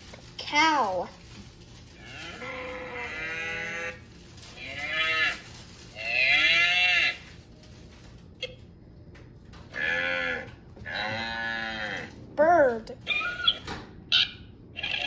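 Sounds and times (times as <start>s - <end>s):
cow mooing: 9.8s - 12.2s.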